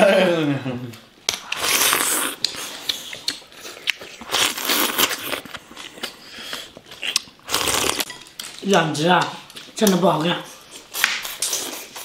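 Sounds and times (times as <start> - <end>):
slurping soup: 1.5 - 8.1.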